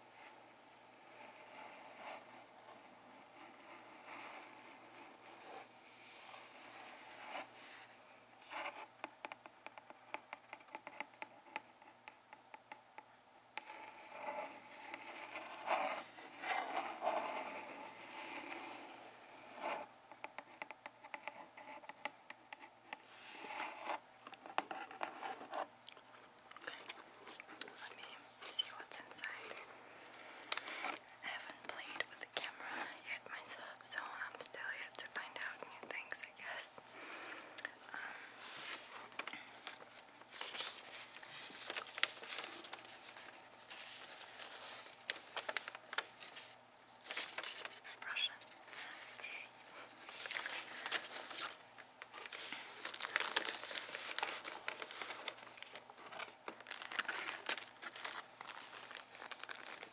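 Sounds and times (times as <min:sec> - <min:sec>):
paper rustling and crinkling: 0:38.0 - 0:59.9
sharp paper crackles: 0:38.5 - 0:49.0, 0:50.0 - 0:59.9.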